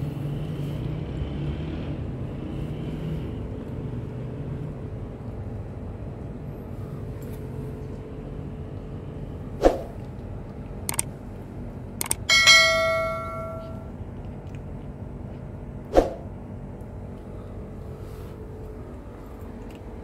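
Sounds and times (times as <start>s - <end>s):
low background hum: 2.0s - 20.0s
notification bell chime: 12.3s - 13.9s.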